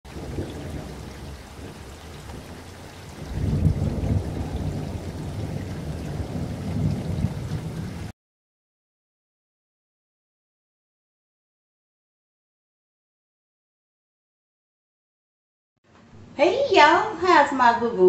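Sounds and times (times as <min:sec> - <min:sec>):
low rumbling: 0:00.1 - 0:08.1.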